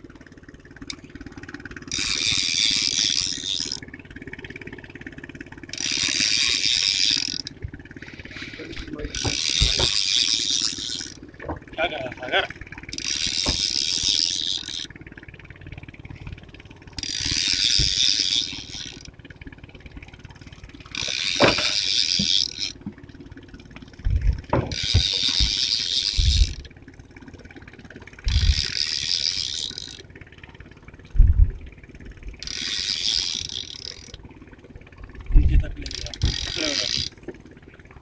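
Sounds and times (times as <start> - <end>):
fishing reel whirring: 0.4 - 38.0
dull low thumps: 24.0 - 26.7, 28.3 - 28.7, 31.1 - 32.4, 35.2 - 36.4.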